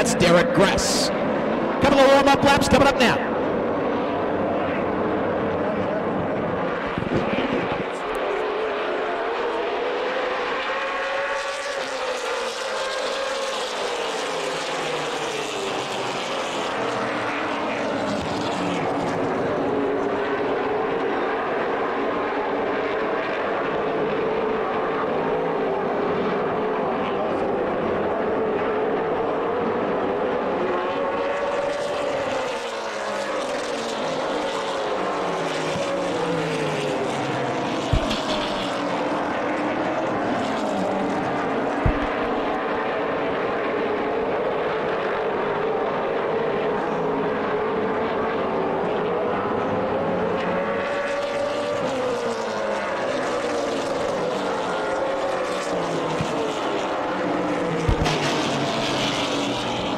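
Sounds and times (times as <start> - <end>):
race car engines passing: 0.0 - 59.9.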